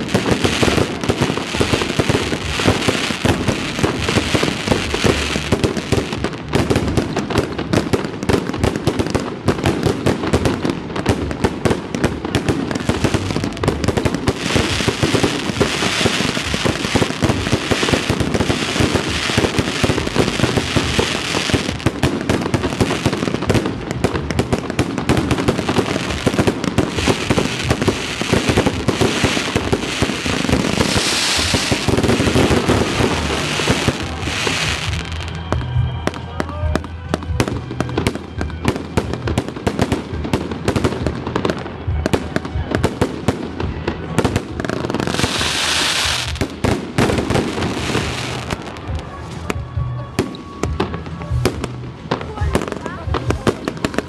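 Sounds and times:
hissing crackle: 0:12.1 - 0:35.3.

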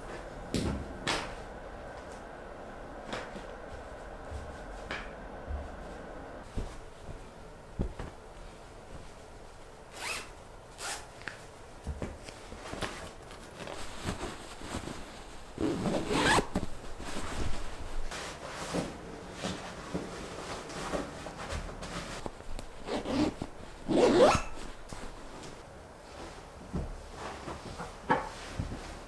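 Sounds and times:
fabric rustling: 0:00.0 - 0:29.0
zipper being zipped: 0:15.6 - 0:16.6, 0:22.8 - 0:24.6.

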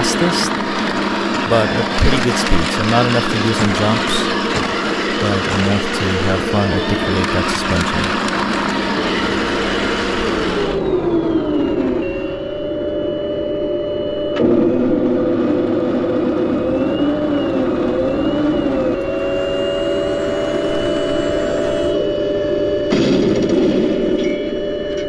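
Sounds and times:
toy tank engine sound effect: 0:00.0 - 0:00.6, 0:01.4 - 0:08.3
broad rush of noise: 0:00.0 - 0:08.2.

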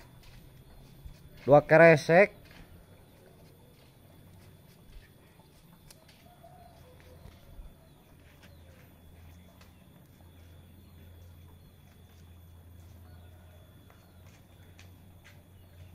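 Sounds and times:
distant bird calls: 0:00.0 - 0:15.9
low steady hum: 0:02.3 - 0:15.9.

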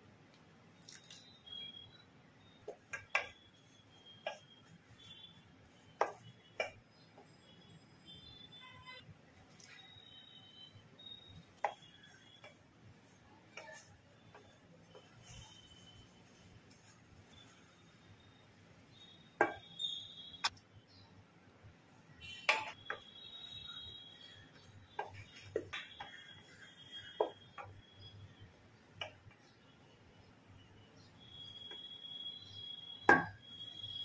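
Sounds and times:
spatula scraping and knocking bowl: 0:02.6 - 0:07.4, 0:11.5 - 0:17.5, 0:22.5 - 0:27.9.

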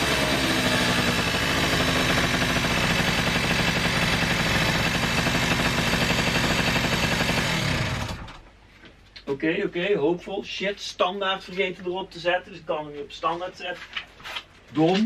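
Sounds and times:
scooter engine idling: 0:00.0 - 0:08.4.

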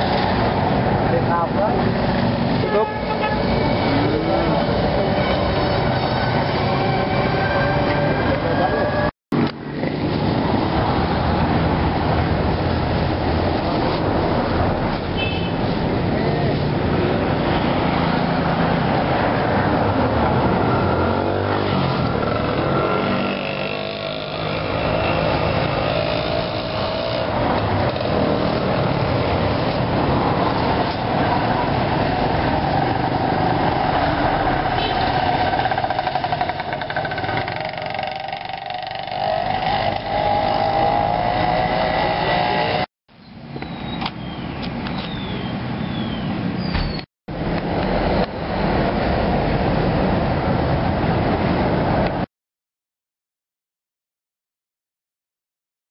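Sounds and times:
passing vehicle engines: 0:00.0 - 0:52.3.

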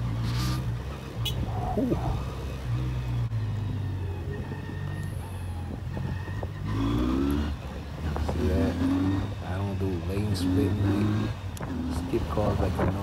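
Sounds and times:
motorcycle engine running low speed: 0:00.0 - 0:13.0.

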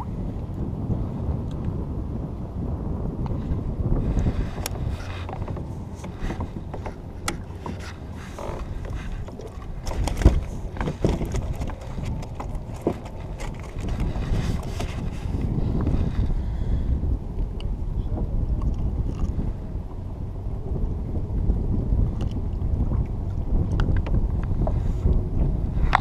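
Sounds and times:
wind rumbling on microphone: 0:00.0 - 0:26.0
clicks knocks and rattles of tackle: 0:04.6 - 0:15.2.

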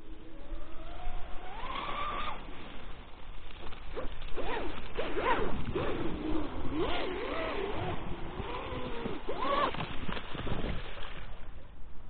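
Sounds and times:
electric motor whine: 0:00.0 - 0:02.8.

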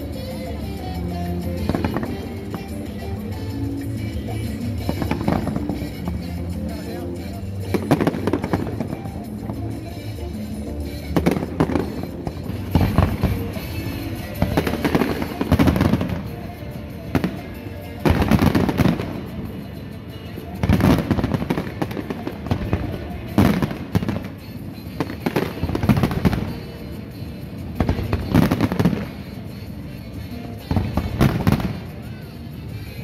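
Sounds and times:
fireworks crackling: 0:00.0 - 0:33.0
fireworks booming: 0:04.5 - 0:06.6, 0:07.6 - 0:09.7, 0:11.0 - 0:19.8, 0:20.5 - 0:26.8, 0:27.7 - 0:29.5, 0:30.6 - 0:32.2.

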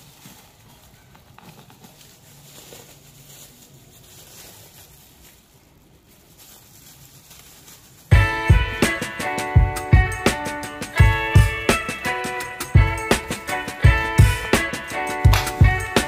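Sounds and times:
music with plucked strings and beats: 0:08.1 - 0:16.0.

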